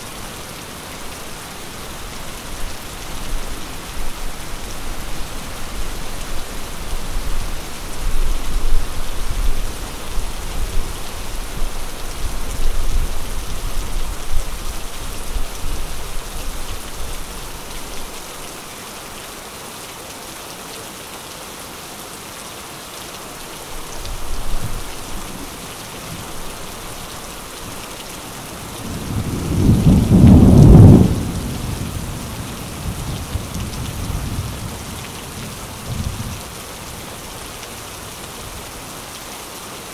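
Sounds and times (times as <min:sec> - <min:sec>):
steady rain hiss: 0:00.0 - 0:39.9
rolling thunder: 0:28.8 - 0:32.2.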